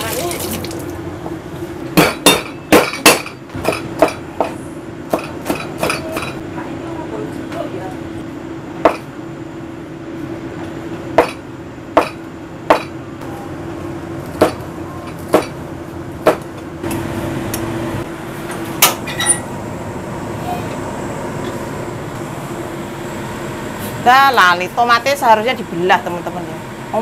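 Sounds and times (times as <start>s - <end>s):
steady low hum: 0.8s - 27.0s.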